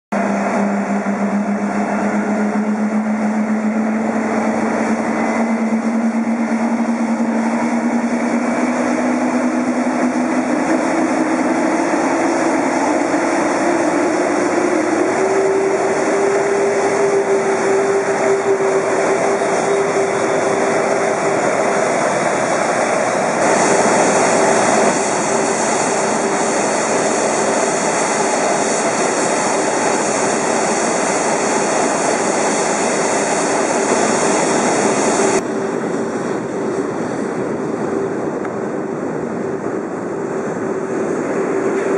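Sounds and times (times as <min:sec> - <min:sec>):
jet engine whine: 0:00.1 - 0:41.9
jet rush: 0:00.1 - 0:41.9.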